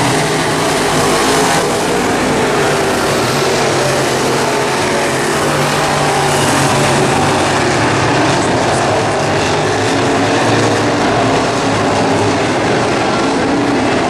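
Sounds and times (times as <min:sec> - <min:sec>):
race car engines: 0:00.0 - 0:14.0.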